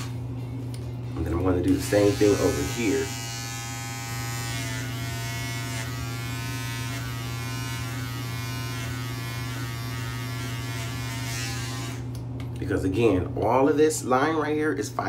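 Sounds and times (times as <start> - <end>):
electric hair trimmer buzzing: 0.0 - 0.2, 1.3 - 12.2.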